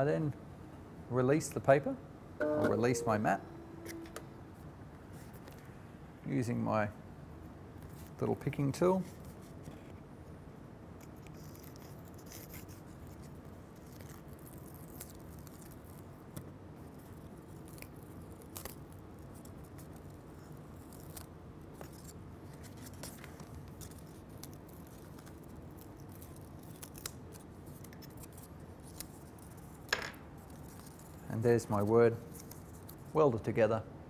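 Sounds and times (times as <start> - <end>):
paper peeling off sticky mat: 32.3 - 33.1.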